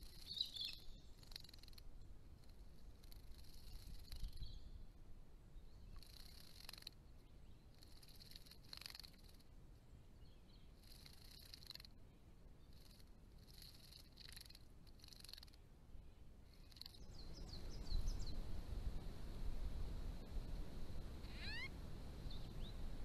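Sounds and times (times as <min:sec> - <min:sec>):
wing fluttering: 0:00.0 - 0:04.6, 0:05.8 - 0:09.5, 0:10.7 - 0:12.0, 0:12.6 - 0:15.6, 0:16.4 - 0:17.8, 0:21.2 - 0:21.7.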